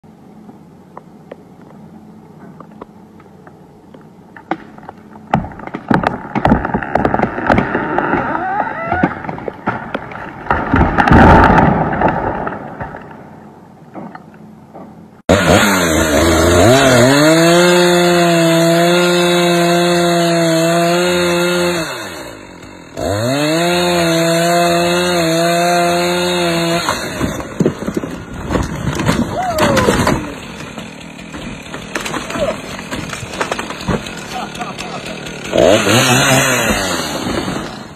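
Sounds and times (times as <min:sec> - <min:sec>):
chainsaw cutting log: 0:04.4 - 0:12.1, 0:15.2 - 0:37.9
tree cracking and snapping: 0:04.4 - 0:13.1, 0:26.0 - 0:37.8
tree crashing down: 0:05.3 - 0:13.2, 0:23.0 - 0:37.9.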